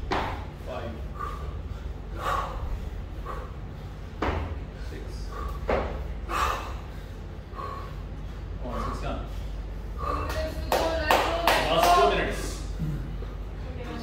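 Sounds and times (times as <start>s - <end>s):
low steady hum: 0.0s - 14.0s
person breathing hard: 1.0s - 10.3s.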